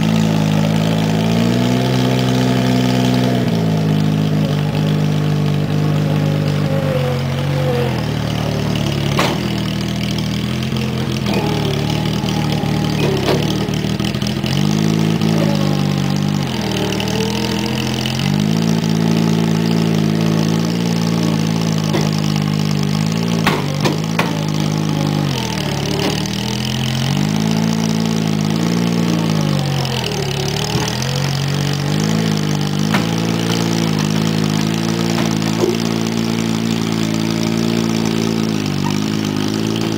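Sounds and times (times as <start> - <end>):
loader engine running under load: 0.0 - 39.9.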